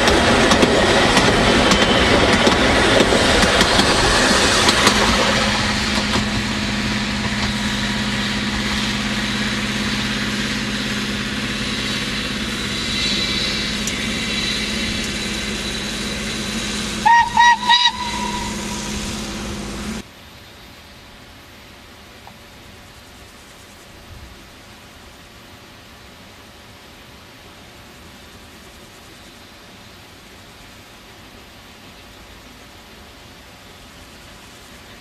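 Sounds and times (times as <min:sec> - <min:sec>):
steam train rumbling past: 0:00.0 - 0:20.6
steam locomotive whistle toots: 0:01.2 - 0:20.0.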